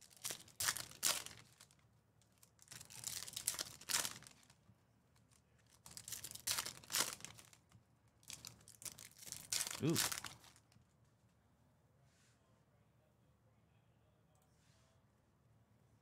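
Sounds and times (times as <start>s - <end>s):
foil wrappers torn and crinkled: 0.0s - 4.6s, 5.2s - 7.6s, 8.2s - 10.8s.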